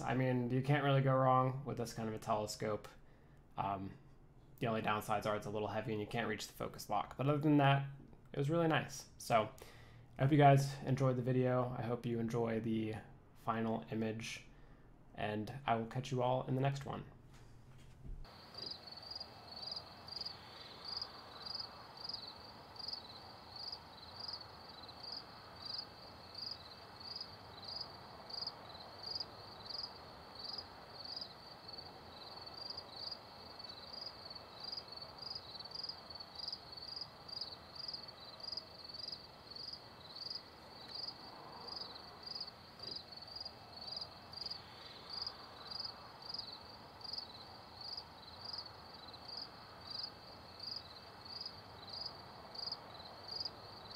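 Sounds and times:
crickets chirping: 18.2s - 53.9s.

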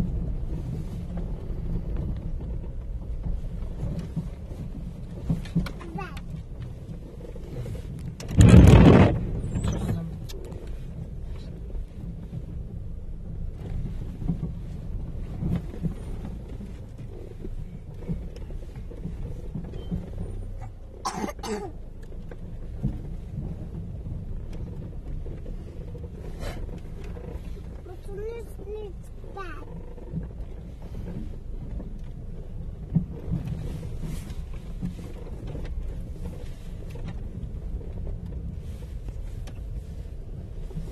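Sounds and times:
car rumbling over dirt lane: 0.0s - 40.9s
wheels knocking into potholes: 0.0s - 40.9s.

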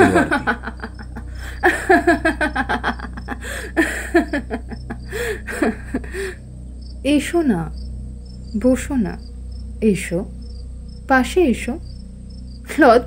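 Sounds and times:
young woman laughing: 0.0s - 6.4s
crickets chirring: 0.0s - 13.0s.

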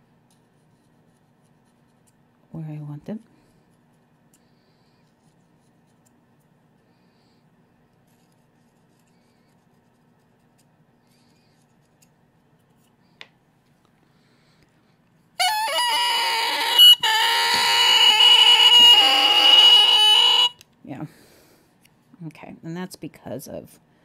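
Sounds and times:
oboe reed crowing: 15.4s - 20.6s.

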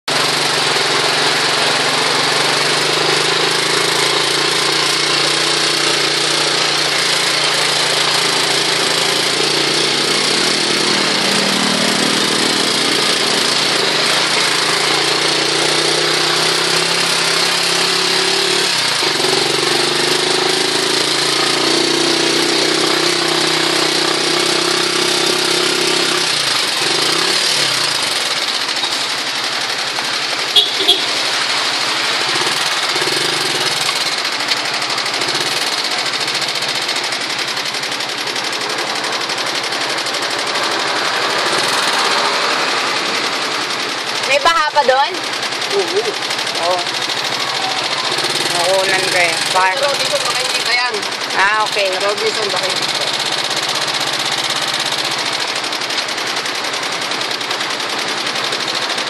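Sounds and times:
heavy rain: 0.1s - 25.3s, 26.2s - 59.0s
vehicle engine drone: 0.1s - 59.0s
tyres splashing through water: 27.5s - 44.4s.

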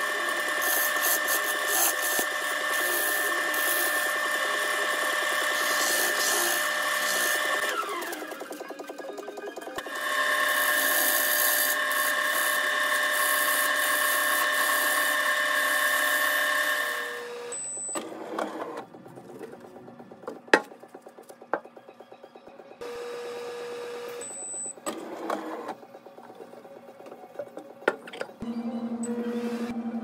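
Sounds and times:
wood lathe whining: 0.0s - 18.8s.

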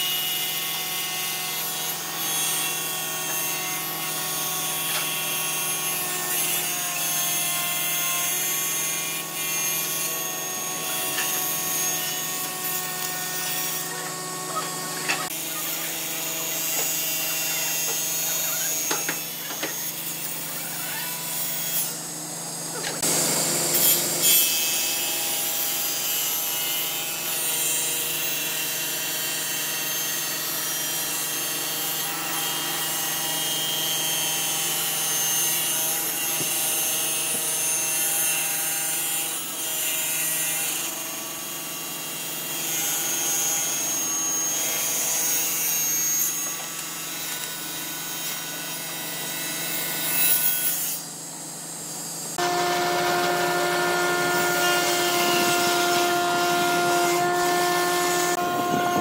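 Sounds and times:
table saw ripping wood: 0.5s - 22.0s, 52.3s - 59.0s.

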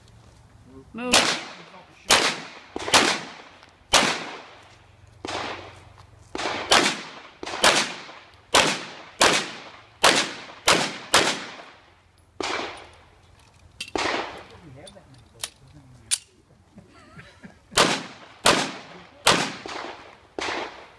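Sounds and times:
pistol shots: 1.1s - 4.6s, 5.2s - 11.8s, 12.4s - 12.9s, 13.9s - 14.6s, 17.8s - 20.9s.

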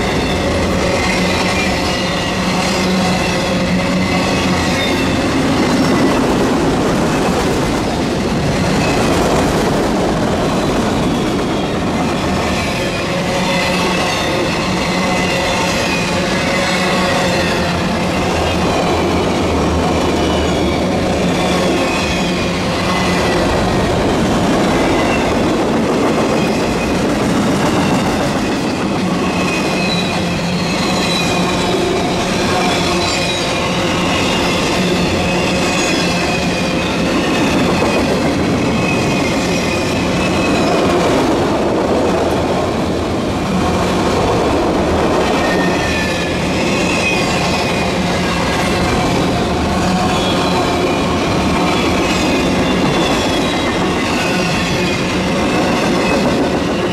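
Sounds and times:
train wheels rumbling and rattling: 0.0s - 56.9s
high wavering wheel squeals: 27.8s - 40.9s.

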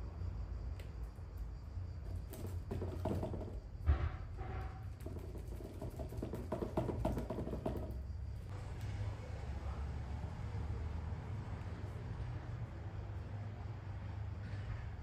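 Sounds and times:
paintbrush tapping and dabbing: 2.0s - 3.6s, 5.0s - 8.1s.

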